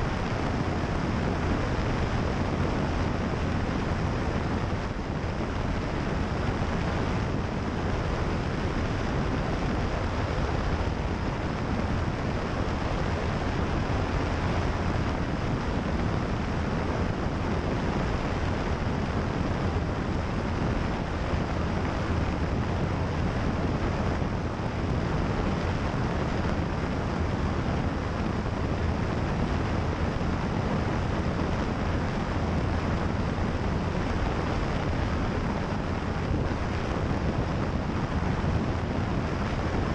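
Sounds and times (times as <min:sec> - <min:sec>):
propeller plane engine drone: 0:00.0 - 0:39.9
wind over microphone: 0:00.0 - 0:39.9.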